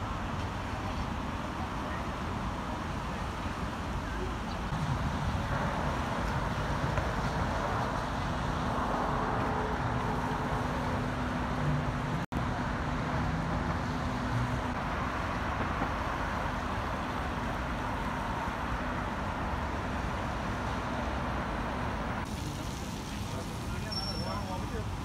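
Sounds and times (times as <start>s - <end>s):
road traffic rushing past: 0.0s - 25.0s.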